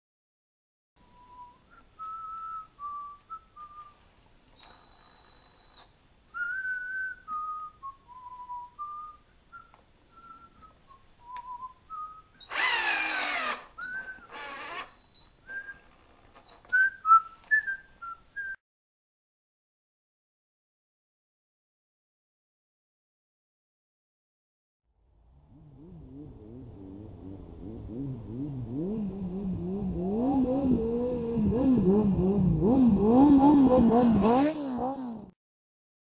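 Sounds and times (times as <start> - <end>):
person whistling a tune: 1.0 - 4.0, 6.4 - 12.4, 13.8 - 14.3, 15.0 - 18.6
power tool running: 12.4 - 15.0.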